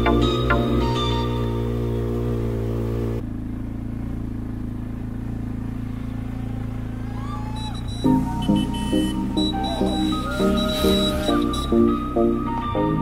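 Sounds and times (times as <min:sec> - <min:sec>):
background music: 0:00.0 - 0:02.5, 0:08.0 - 0:13.0
quad bike engine running: 0:00.0 - 0:13.0.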